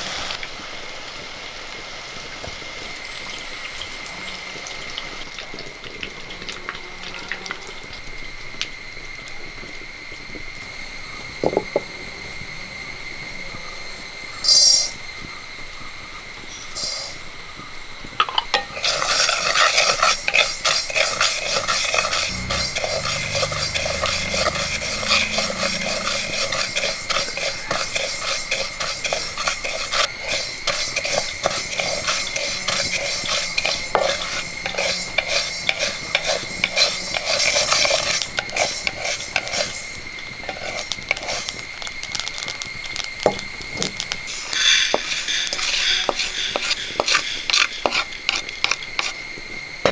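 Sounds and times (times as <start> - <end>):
seeds rattling in metal pan: 18.3 - 49.1
seeds pattering onto plate: 18.6 - 49.2
steady high tone: 22.1 - 27.8.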